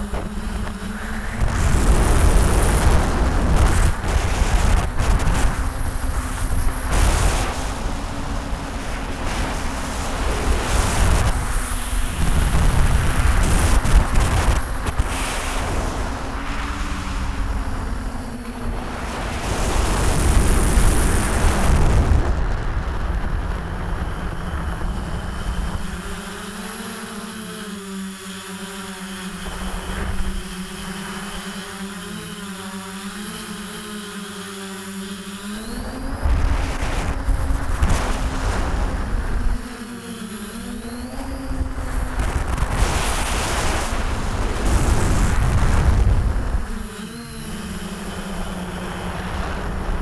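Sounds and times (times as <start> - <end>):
wind rumble: 0.0 - 18.0, 41.6 - 46.7
drone motors humming: 0.0 - 50.0
high steady whine: 0.0 - 50.0.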